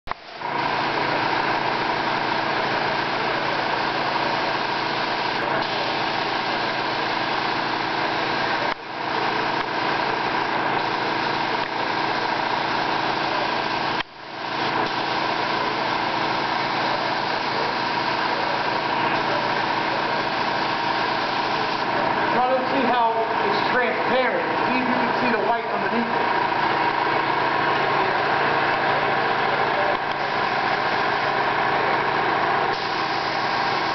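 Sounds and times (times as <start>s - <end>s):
continuous machine hum: 0.1s - 33.9s
spray gun air hiss: 3.7s - 18.6s, 19.2s - 21.9s, 32.7s - 33.9s.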